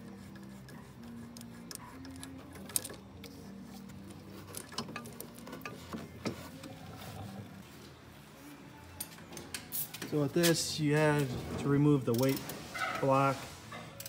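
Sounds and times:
metal clicks of hand tools: 0.1 - 3.3, 3.9 - 6.8.

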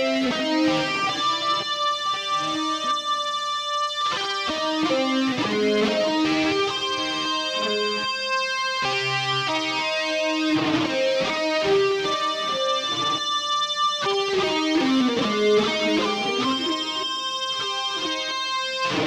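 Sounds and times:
electric guitar single notes: 0.0 - 19.0.

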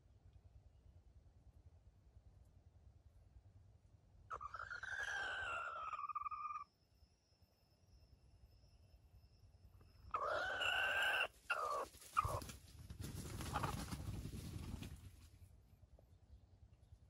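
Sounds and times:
rooster crowing: 10.1 - 12.4.

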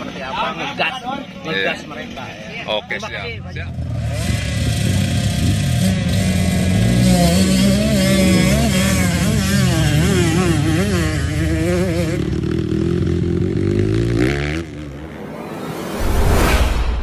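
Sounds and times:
dirt bike engines revving: 0.0 - 16.0
whoosh with low boom: 14.7 - 17.0.

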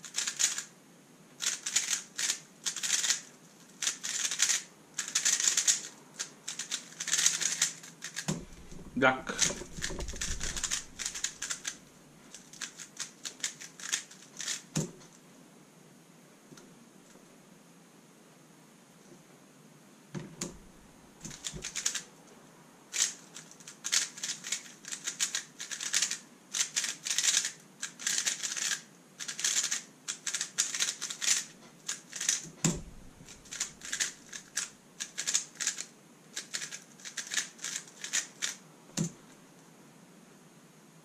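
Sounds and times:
puzzle cube clicking: 0.0 - 0.7, 1.4 - 14.7, 21.3 - 22.0, 22.9 - 38.6
dull thumps: 8.3 - 11.5, 32.6 - 33.6.

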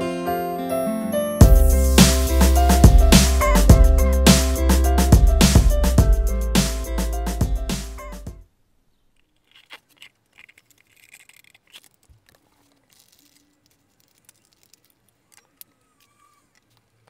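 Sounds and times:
metal parts clicking and rattling: 9.2 - 17.0.

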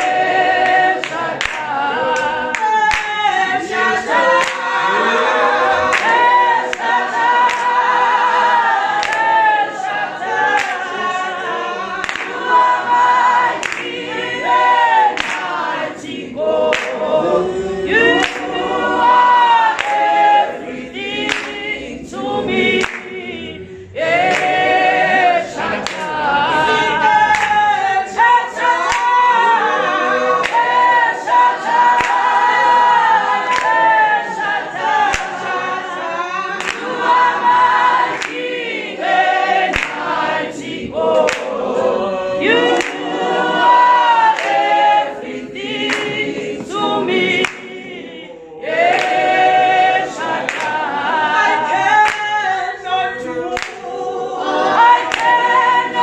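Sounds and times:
hand claps: 0.0 - 4.8, 5.8 - 8.0, 8.6 - 11.1, 12.0 - 12.8, 13.4 - 14.1, 14.9 - 17.1, 18.1 - 18.6, 19.6 - 20.4, 21.2 - 21.7, 22.8 - 23.2, 24.1 - 25.0, 25.6 - 26.2, 26.8 - 29.6, 30.4 - 35.5, 36.5 - 41.6, 42.5 - 47.8, 48.8 - 52.4, 53.5 - 53.9, 54.8 - 56.0
choir singing a cappella: 0.0 - 56.0.

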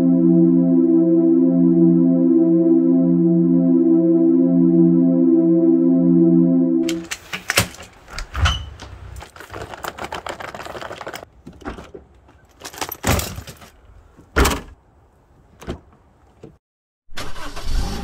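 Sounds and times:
synth music: 0.0 - 7.0
suitcase wheels rattling over bricks: 7.8 - 13.9.

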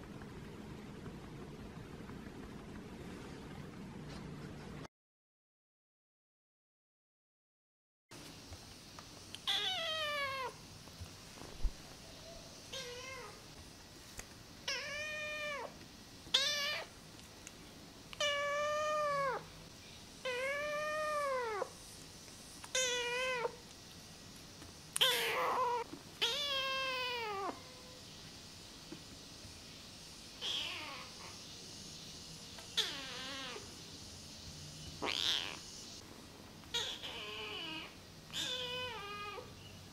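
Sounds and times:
kitten meowing: 9.4 - 10.6, 12.7 - 13.4, 14.7 - 15.7, 16.3 - 16.9, 22.7 - 23.6, 25.0 - 27.8, 30.4 - 31.1, 32.8 - 33.6, 35.0 - 35.6, 36.7 - 39.5.

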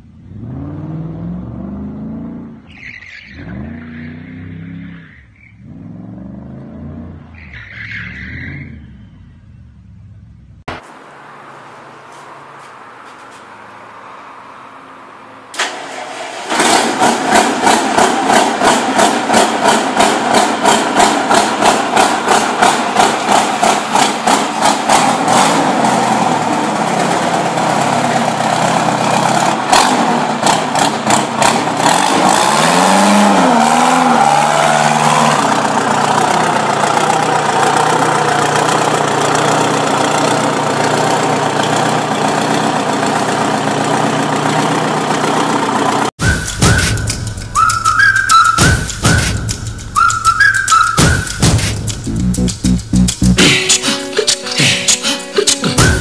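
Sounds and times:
motorcycle engine revving: 0.0 - 2.7, 3.4 - 7.4, 16.3 - 53.6.

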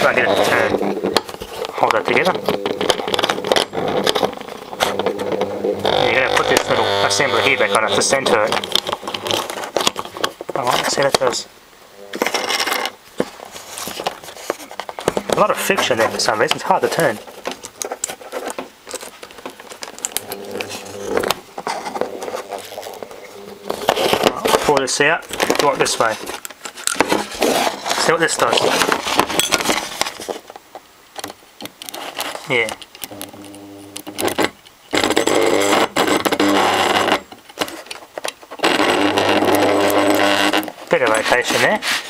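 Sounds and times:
fuel pump motor buzzing and rattling: 0.0 - 10.3, 19.6 - 24.6, 33.0 - 37.2, 38.6 - 40.8
small parts clicking and scraping: 0.0 - 11.3, 12.2 - 42.0.

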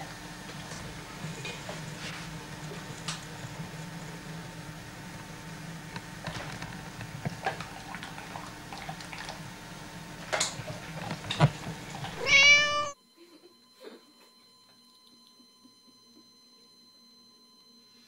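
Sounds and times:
cat meow: 12.2 - 13.0.

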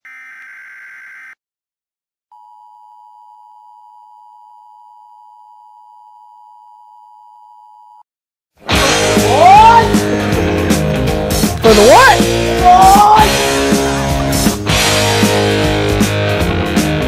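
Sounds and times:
loud music: 8.6 - 17.0.

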